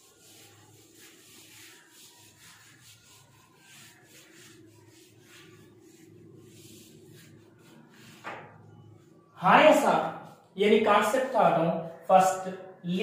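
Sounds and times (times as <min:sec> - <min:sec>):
eraser rubbing on whiteboard: 0:00.0 - 0:09.3.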